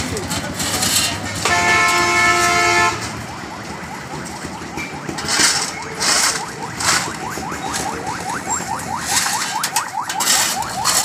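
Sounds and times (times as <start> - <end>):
vehicle horn: 1.4 - 3.1
shovel scraping into gravel: 5.2 - 7.2, 9.0 - 11.0.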